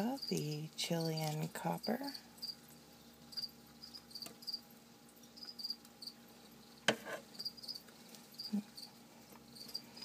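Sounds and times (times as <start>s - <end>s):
crickets chirping: 1.8s - 2.6s, 3.3s - 4.6s, 5.4s - 6.8s, 7.4s - 10.0s.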